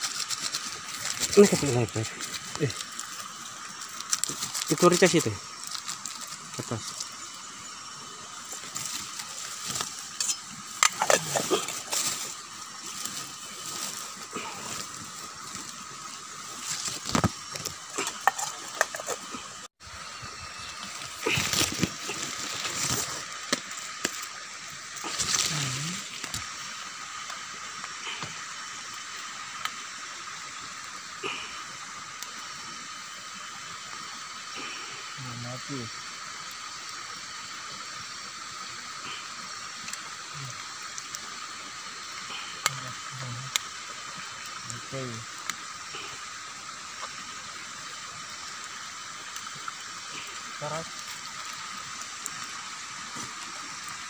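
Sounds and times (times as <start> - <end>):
campfire crackling: 0.0 - 54.0
pot of food boiling: 0.0 - 54.0.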